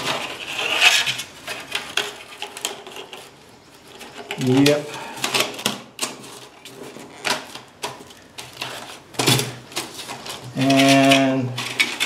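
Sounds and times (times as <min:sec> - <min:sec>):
foam sheets rubbing: 0:00.0 - 0:02.4.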